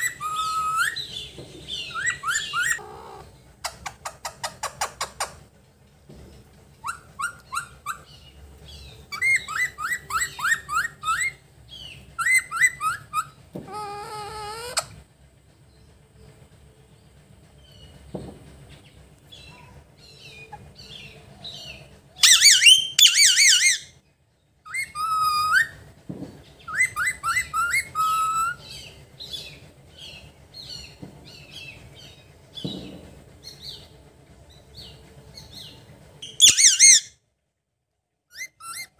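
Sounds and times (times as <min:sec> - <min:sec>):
parakeet wavering screeches: 0:00.0 - 0:01.2, 0:01.9 - 0:03.3, 0:12.2 - 0:15.0, 0:22.2 - 0:24.0, 0:24.7 - 0:25.8, 0:26.7 - 0:28.6, 0:36.2 - 0:37.1, 0:38.3 - 0:38.9
parakeet whistled notes: 0:00.0 - 0:02.8, 0:09.1 - 0:13.4, 0:22.2 - 0:23.9, 0:24.7 - 0:25.8, 0:26.7 - 0:28.9, 0:36.2 - 0:37.1, 0:38.3 - 0:38.9
parakeet soft chirps: 0:36.2 - 0:37.1.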